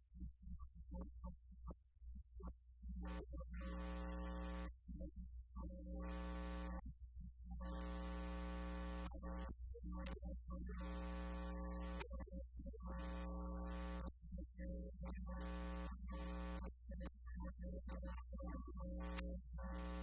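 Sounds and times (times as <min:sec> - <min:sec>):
electronic buzz switching on and off: 0:03.2 - 0:04.7, 0:07.6 - 0:09.1, 0:19.0 - 0:20.0.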